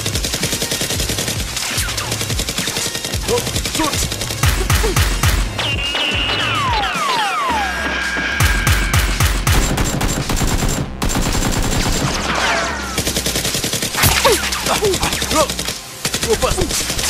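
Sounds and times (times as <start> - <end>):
rapid automatic gunfire: 0.0 - 7.4, 8.4 - 17.0
falling whistles: 5.6 - 8.9.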